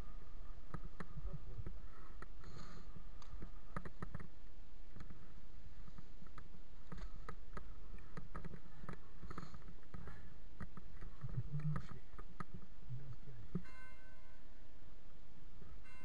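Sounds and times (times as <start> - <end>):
light clicks and rattles: 4.9 - 13.7.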